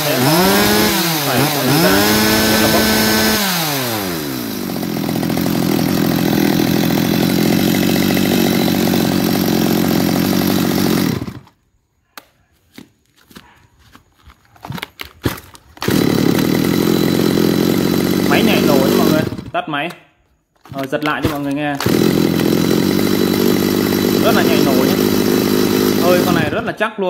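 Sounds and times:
chainsaw revving and idling: 0.0 - 11.6, 15.2 - 19.6, 20.6 - 26.8
handling clicks and knocks: 19.8 - 21.9.

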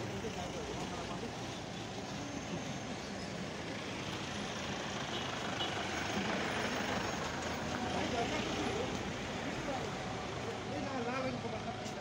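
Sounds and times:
motor vehicles on road: 0.0 - 12.0.

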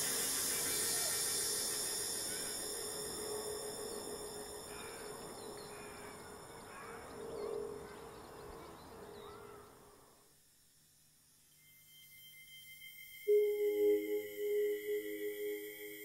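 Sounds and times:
low hum drone: 0.0 - 9.1
faint chirping: 0.0 - 16.0.

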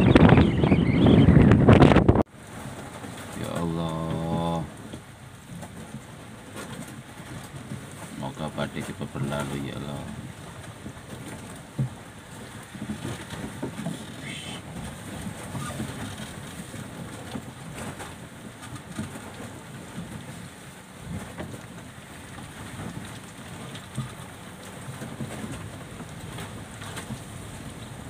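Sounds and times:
strong wind: 0.0 - 3.0, 10.0 - 28.0
rough sea rushing: 0.0 - 28.0
waves knocking against hull: 0.0 - 28.0.

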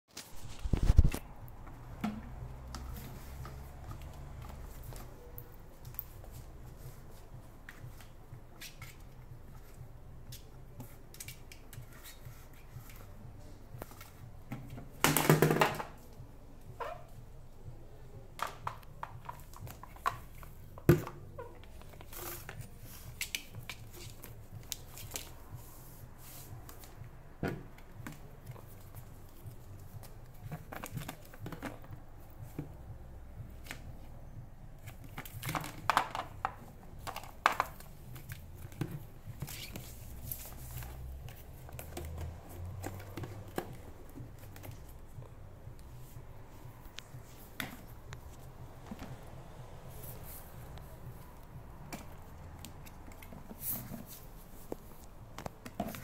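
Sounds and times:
plastic trash can knocking on tiles: 15.1 - 15.9.

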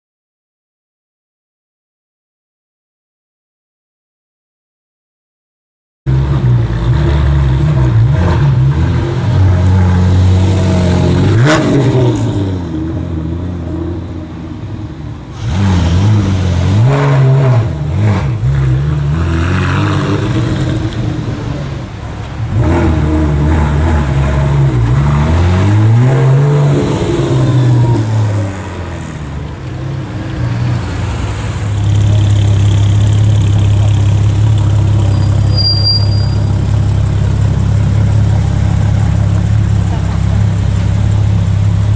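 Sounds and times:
car engine revving: 6.1 - 14.0, 15.3 - 41.9
car engine idling: 31.7 - 41.9.

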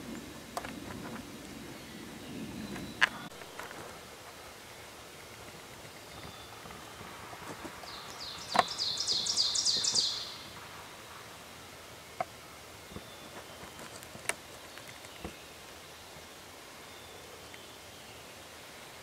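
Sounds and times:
songbird singing high notes: 7.9 - 10.6.

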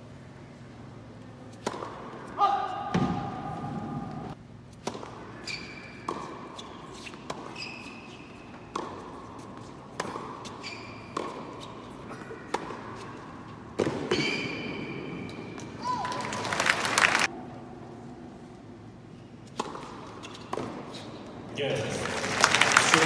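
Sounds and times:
racket striking tennis ball: 1.5 - 15.8, 19.4 - 21.1
shoe squeaks: 5.3 - 13.3, 14.1 - 15.6, 20.1 - 21.2.

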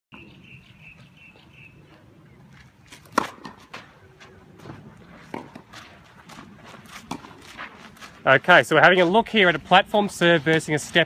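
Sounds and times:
tennis racket striking ball: 3.0 - 3.9, 5.3 - 5.7.

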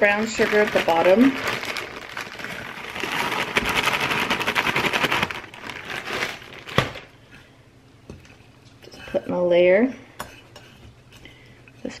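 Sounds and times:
sugar pouring from plastic bag: 0.0 - 7.0.

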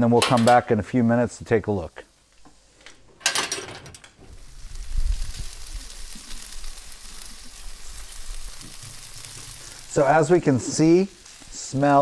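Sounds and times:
chicken sizzling on a grill: 4.2 - 12.0.

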